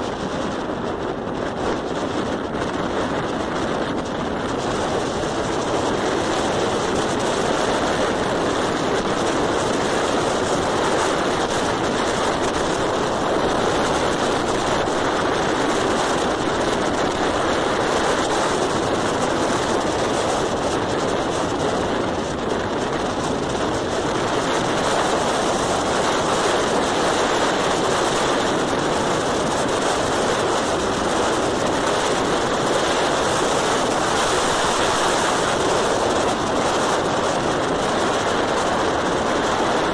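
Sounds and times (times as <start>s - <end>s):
road and wind noise: 0.0s - 39.9s.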